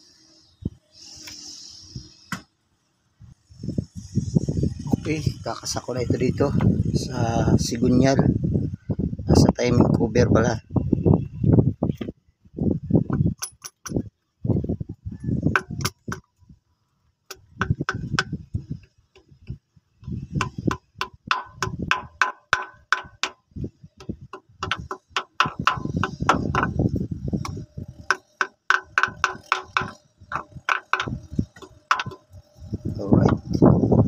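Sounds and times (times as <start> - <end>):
hammer tapping on metal: 17.3 - 18.4, 20.4 - 26.8, 27.4 - 32.3.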